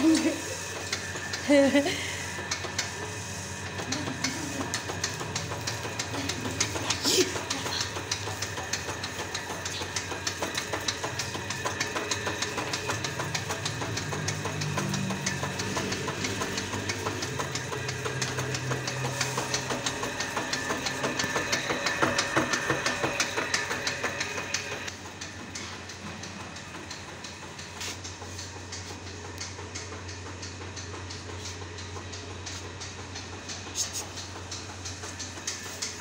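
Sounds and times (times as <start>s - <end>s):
low machine hum: 0.0s - 36.0s
machine ticking rhythmically: 0.0s - 36.0s.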